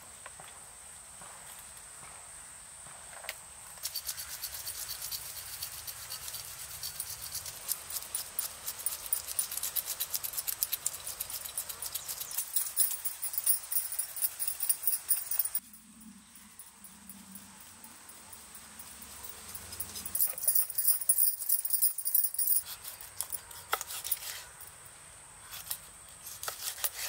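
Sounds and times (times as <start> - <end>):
knife scraping fish scales: 3.8 - 13.1, 22.5 - 24.6, 25.5 - 27.0.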